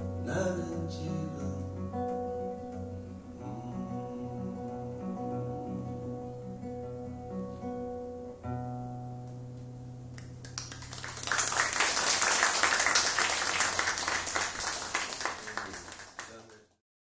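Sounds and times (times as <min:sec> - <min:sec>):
acoustic guitar chord ringing: 0:00.0 - 0:10.4
audience applause: 0:10.4 - 0:16.8.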